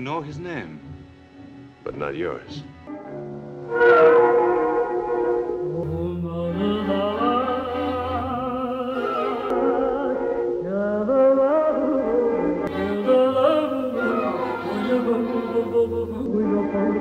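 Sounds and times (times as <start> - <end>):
woman singing operatically: 5.8 - 17.0.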